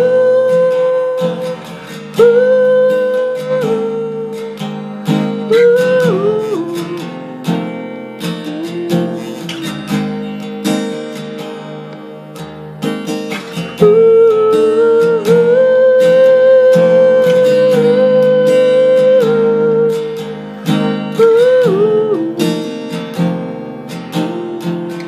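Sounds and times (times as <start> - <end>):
person singing wordless notes: 0.0 - 4.7, 5.4 - 7.6, 8.2 - 10.2, 13.8 - 22.9
acoustic guitar strumming: 0.0 - 25.0.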